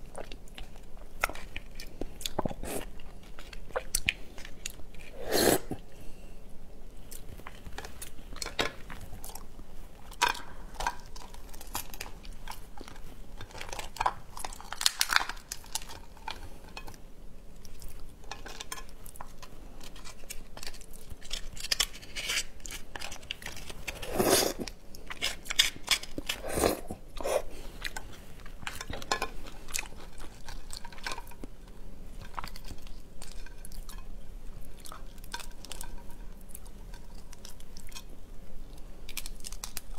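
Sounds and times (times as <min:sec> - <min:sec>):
crab shell cracking: 0:13.7 - 0:16.4.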